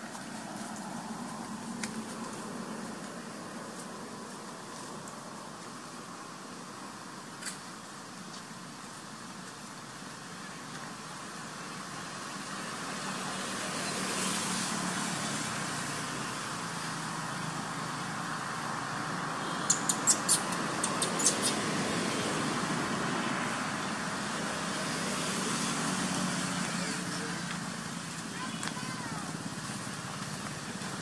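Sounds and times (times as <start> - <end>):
passing motor traffic: 0.0 - 31.0
sharp high clicks: 19.6 - 21.6.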